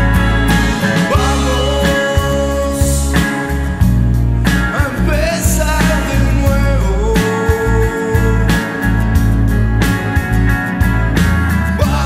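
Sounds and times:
drum hits: 0:00.0 - 0:12.0
rock band playing: 0:00.0 - 0:12.0
man singing: 0:00.4 - 0:03.8, 0:04.6 - 0:09.1, 0:11.7 - 0:12.0.

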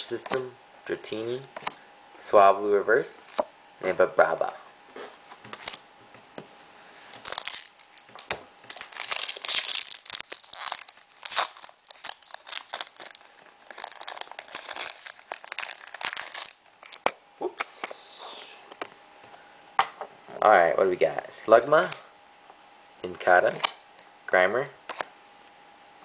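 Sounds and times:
foil wrapper tearing and crinkling: 0:07.1 - 0:17.1.

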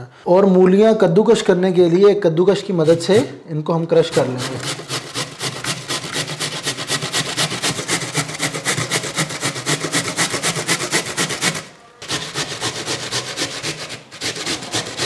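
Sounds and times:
radish grated on metal grater: 0:03.9 - 0:15.0.

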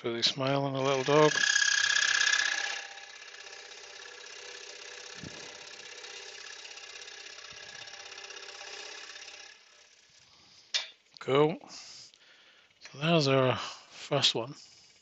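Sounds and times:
scroll saw cutting wood: 0:00.4 - 0:10.6.

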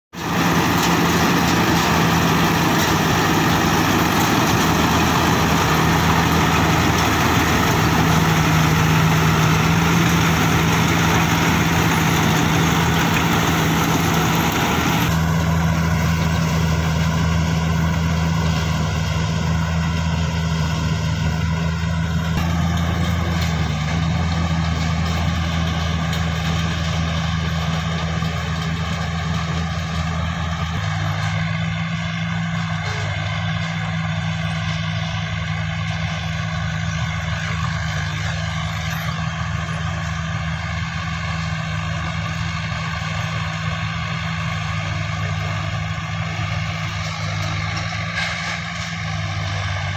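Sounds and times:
diesel engine hum: 0:00.0 - 0:49.9
threshing machinery rattle and whir: 0:00.2 - 0:49.9.

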